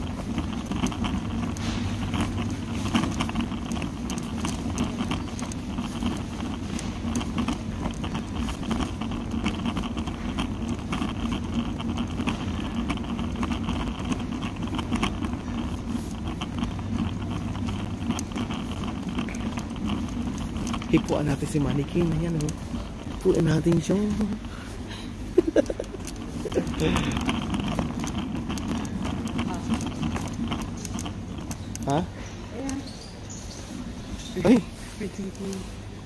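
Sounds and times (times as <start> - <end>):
small clicks and rattles: 0.0 - 35.8
steady low hum: 0.0 - 36.0.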